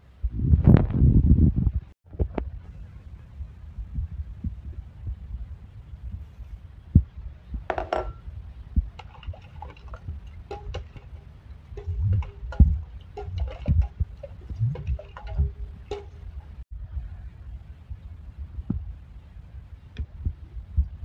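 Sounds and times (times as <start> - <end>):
spoon scraping steel bowl: 9.0 - 16.6.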